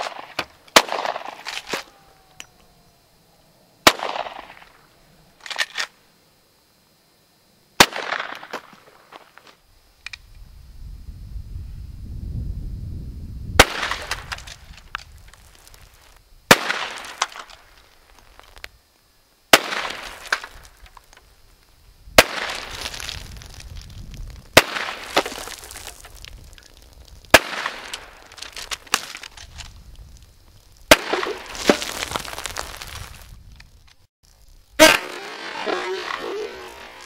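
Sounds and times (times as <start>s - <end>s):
rifle shots ringing out: 0.0s - 1.8s, 3.8s - 4.7s, 16.5s - 17.3s, 19.6s - 20.2s, 30.9s - 31.6s, 34.8s - 37.0s.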